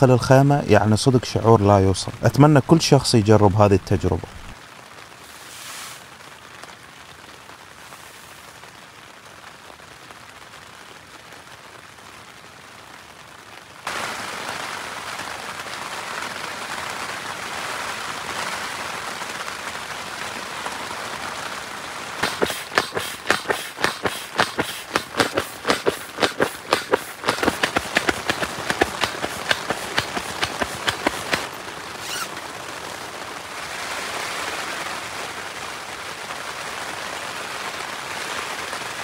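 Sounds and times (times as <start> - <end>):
rain on tent fabric: 0.0 - 39.0
bellows pump puffing: 22.2 - 32.3.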